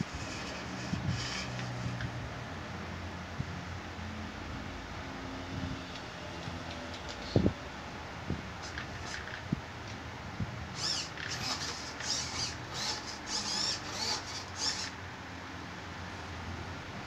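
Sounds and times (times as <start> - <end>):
servo motors whining: 0.0 - 2.2, 8.6 - 9.3, 10.7 - 15.0.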